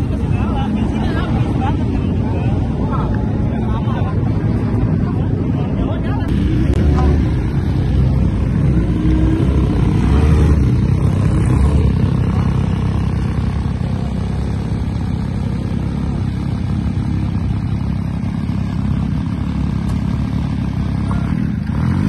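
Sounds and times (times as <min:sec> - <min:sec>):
motorcycle engine idling: 0:06.3 - 0:22.0.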